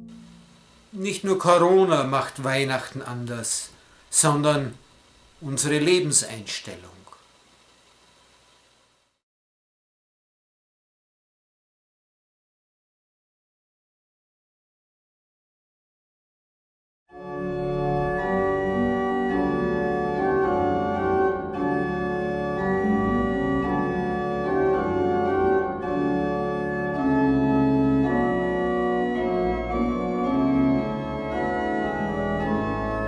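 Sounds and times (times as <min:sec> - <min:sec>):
organ playing sustained chords: 0:00.0 - 0:07.8, 0:17.2 - 0:33.0.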